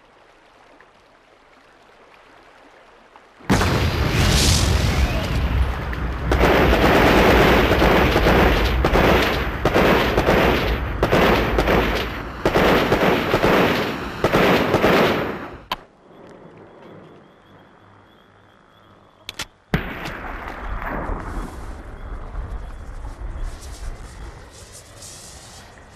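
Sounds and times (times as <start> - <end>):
heavy machine-gun fire: 6.3 - 15.7.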